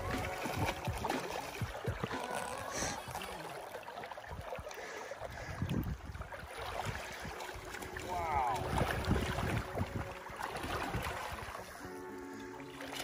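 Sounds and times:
fish splashing in water: 0:00.0 - 0:11.9
wind buffeting microphone: 0:05.2 - 0:12.0.

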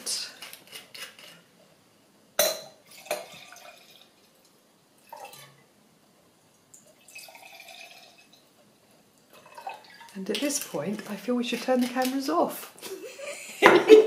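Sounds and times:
wine pouring into glass: 0:02.8 - 0:05.5, 0:06.8 - 0:08.5, 0:09.4 - 0:10.2.

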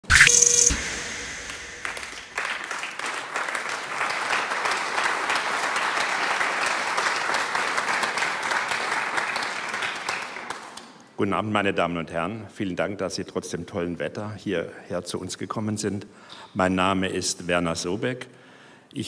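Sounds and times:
audience applauding: 0:01.8 - 0:10.7.

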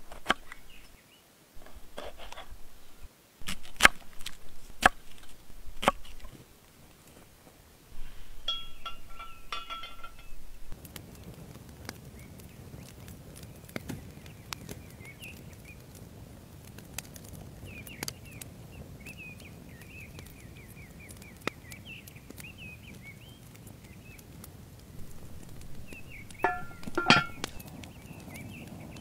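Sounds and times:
small birds chirping: 0:00.0 - 0:03.1, 0:07.9 - 0:16.0, 0:17.6 - 0:29.0
metal grill rack clinking: 0:08.4 - 0:10.7, 0:25.0 - 0:27.6
light clicks and knocks: 0:25.0 - 0:27.6.

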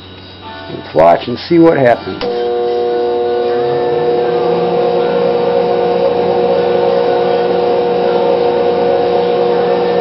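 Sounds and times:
battery charger humming: 0:02.2 - 0:10.0.

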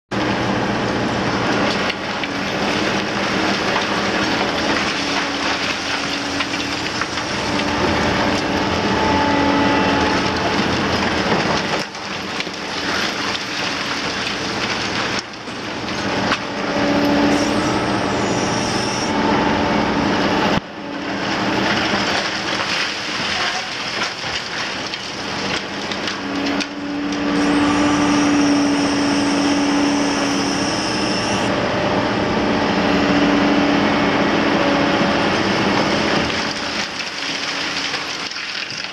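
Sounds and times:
excavator diesel engine: 0:00.1 - 0:38.9
concrete crunching and clattering: 0:01.5 - 0:08.9, 0:09.8 - 0:16.5, 0:21.6 - 0:26.8, 0:35.7 - 0:38.9.

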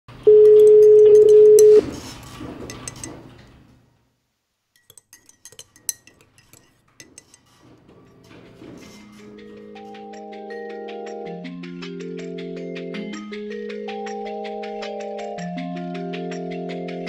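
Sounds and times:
loud steady tone: 0:00.1 - 0:01.9
teaspoon clinking in ceramic cup: 0:02.7 - 0:03.1, 0:04.8 - 0:08.2.

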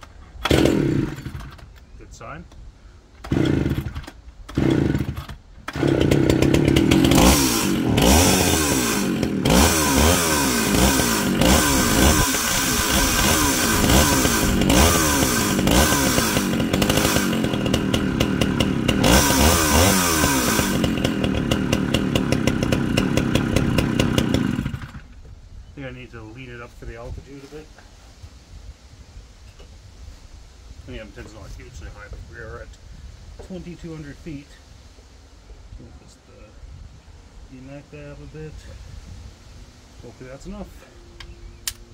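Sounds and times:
chainsaw starting and revving: 0:00.4 - 0:01.6, 0:03.2 - 0:25.2.

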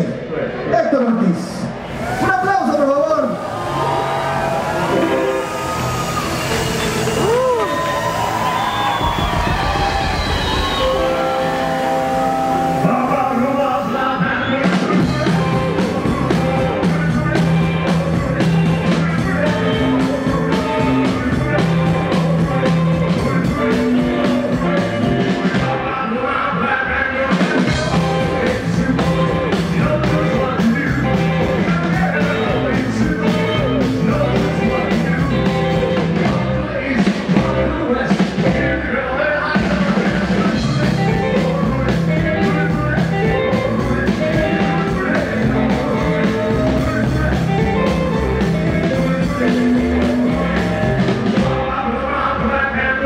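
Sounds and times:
electric guitar: 0:01.6 - 0:53.0
steady drum beat: 0:04.7 - 0:11.9, 0:14.8 - 0:25.8, 0:27.4 - 0:38.7, 0:39.6 - 0:51.6
upright double bass: 0:15.0 - 0:26.0, 0:27.7 - 0:38.9, 0:40.4 - 0:51.8.

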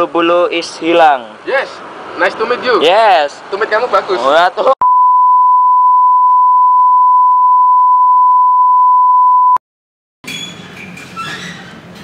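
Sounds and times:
censor bleep tone: 0:04.8 - 0:09.6.

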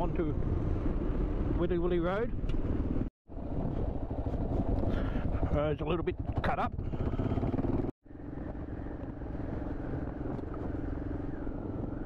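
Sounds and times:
motorcycle engine rumbling: 0:02.5 - 0:12.0.

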